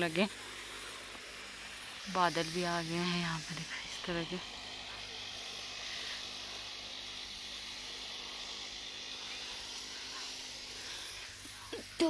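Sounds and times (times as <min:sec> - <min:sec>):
spray lance hissing: 0:00.0 - 0:12.0.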